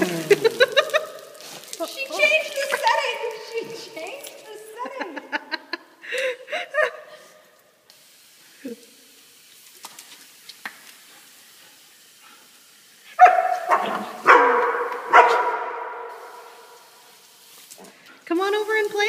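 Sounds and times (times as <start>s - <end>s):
dog yip: 13.2s - 15.8s
dog barking with echo: 13.2s - 16.6s.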